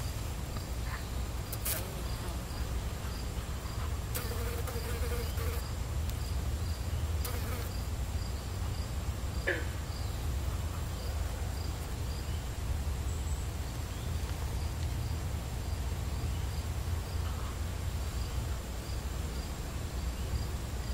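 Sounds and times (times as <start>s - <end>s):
insect chirping: 0.0s - 13.5s.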